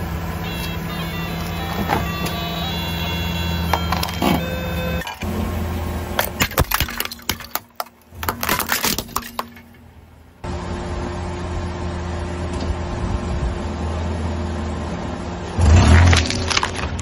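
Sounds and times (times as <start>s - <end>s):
car engine idling: 0.0s - 6.4s
toy guitar electronic tones: 0.4s - 5.3s
tyre crushing plastic: 6.2s - 9.7s, 16.0s - 17.0s.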